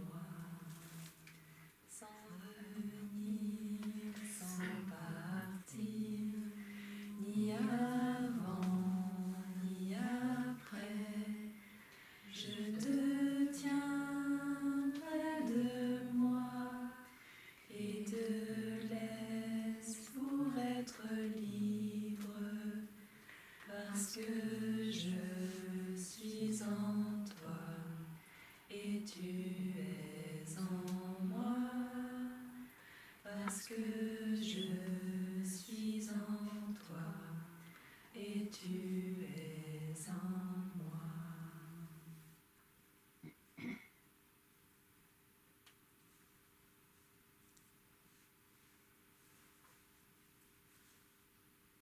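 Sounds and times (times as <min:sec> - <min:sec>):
voices singing a gentle song: 0:00.0 - 0:42.4.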